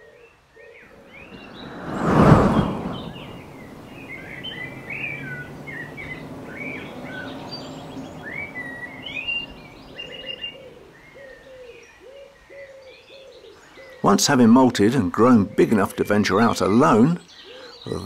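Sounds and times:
songbirds singing: 0.0s - 18.0s
bird cooing: 6.6s - 14.0s.

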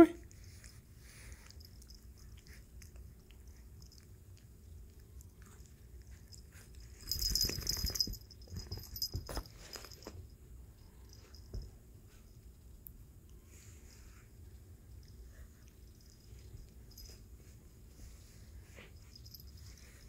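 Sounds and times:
puppy chewing on a hand: 0.2s - 7.0s
rustling and thumps: 7.0s - 10.2s.

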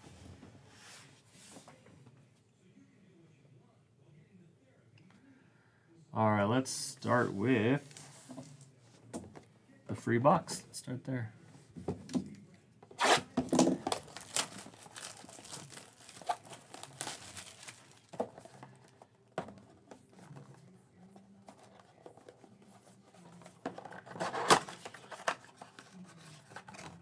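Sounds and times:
packaging rustling and crinkling: 13.5s - 19.0s.

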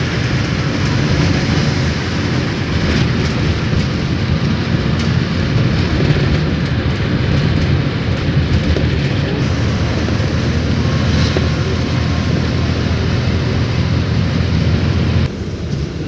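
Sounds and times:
vehicle cabin rumble: 0.0s - 16.0s
tyre and road hiss: 9.3s - 16.0s.

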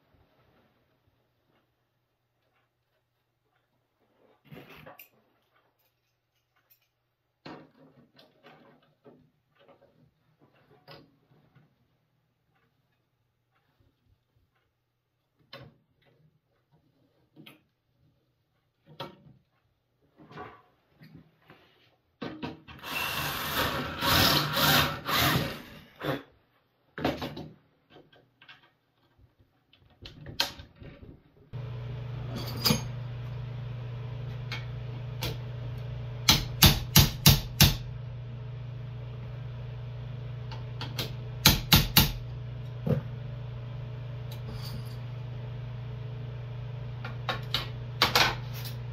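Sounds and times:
hammer striking steel: 36.2s - 37.9s.

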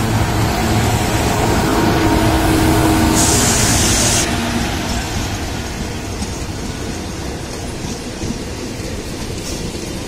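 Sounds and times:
electric locomotive motor hum: 0.0s - 9.3s
train wheels rumbling: 0.0s - 10.0s
loud hiss: 2.5s - 4.4s.

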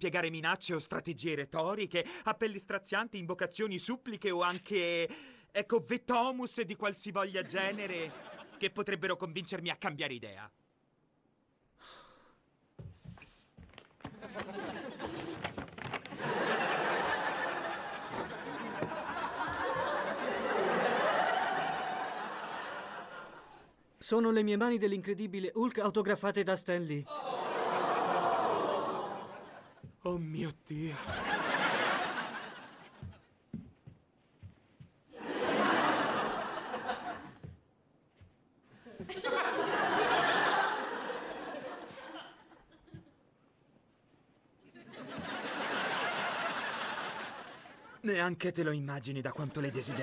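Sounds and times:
studio audience laughter: 7.5s - 8.7s, 14.1s - 23.7s, 27.1s - 29.9s, 30.8s - 33.2s, 35.2s - 37.5s, 38.8s - 43.1s, 44.7s - 48.0s, 49.3s - 50.0s
paper bag rustling: 15.0s - 16.2s.

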